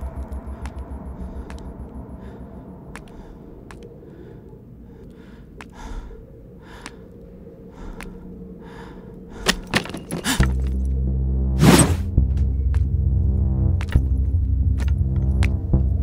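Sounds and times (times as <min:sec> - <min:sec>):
low dramatic music: 0:00.0 - 0:16.0
faint clicks: 0:00.2 - 0:01.9, 0:02.9 - 0:08.4
man breathing heavily: 0:00.2 - 0:10.7.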